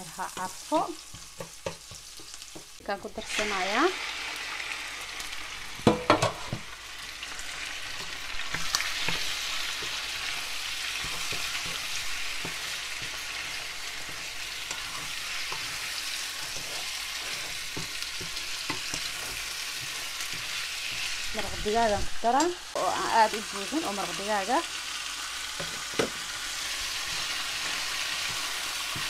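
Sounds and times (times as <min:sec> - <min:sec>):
food sizzling in frying pan: 0:00.0 - 0:29.0.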